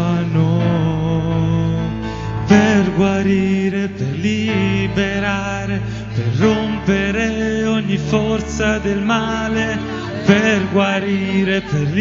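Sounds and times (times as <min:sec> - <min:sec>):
instrumental accompaniment: 0:00.0 - 0:12.0
group singing: 0:06.1 - 0:12.0.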